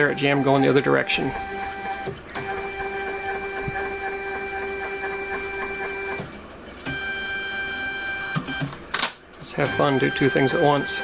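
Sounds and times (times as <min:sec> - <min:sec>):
stepper motor whine: 0:00.0 - 0:06.3.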